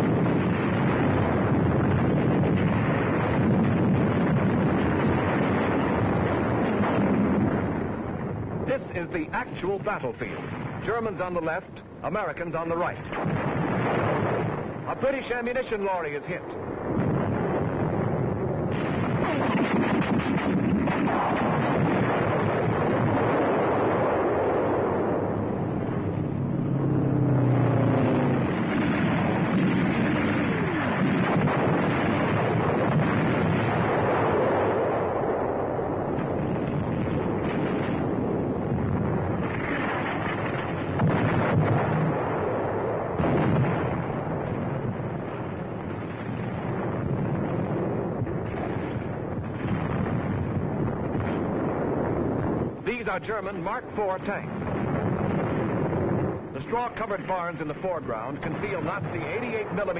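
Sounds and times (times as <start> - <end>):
shell explosions: 0.0 - 59.9
gunfire: 13.0 - 24.9, 28.0 - 35.5, 36.1 - 59.9.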